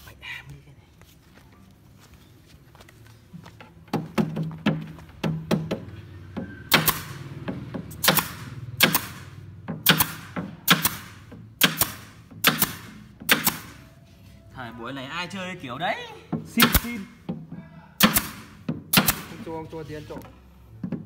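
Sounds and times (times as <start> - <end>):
nail gun firing: 6.7 - 7.2, 8.0 - 13.8, 16.5 - 17.1, 18.0 - 19.5.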